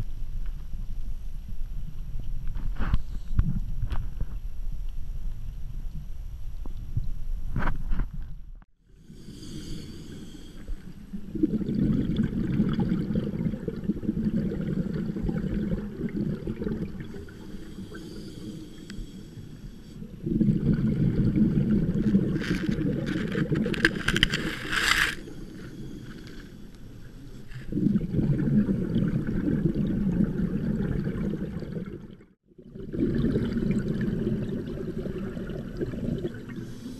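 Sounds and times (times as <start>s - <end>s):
underwater rumble and gurgling: 10.7s - 18.0s, 19.9s - 36.9s
crackling: 21.7s - 27.7s.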